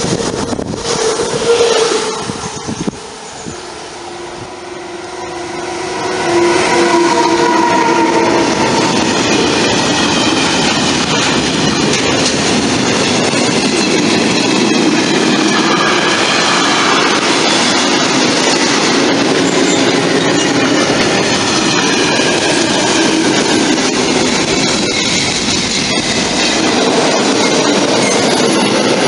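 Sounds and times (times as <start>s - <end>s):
electric train whine: 0.0s - 29.0s
high wheel squeal: 0.3s - 12.4s, 13.4s - 29.0s
train wheels clattering on rails: 6.8s - 29.0s.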